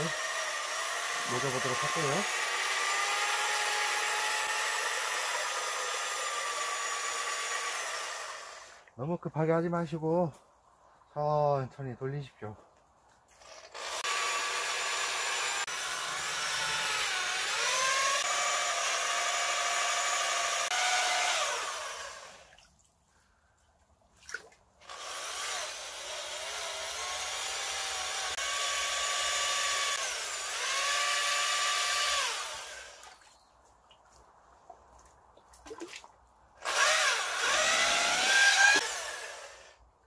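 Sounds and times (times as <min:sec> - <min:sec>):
electric paddle mixer running: 0:36.7 - 0:39.5.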